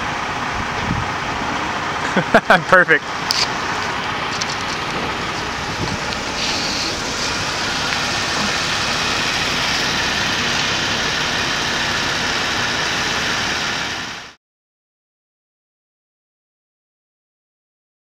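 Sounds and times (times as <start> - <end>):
vehicle engine and tyre noise: 0.0 - 14.4.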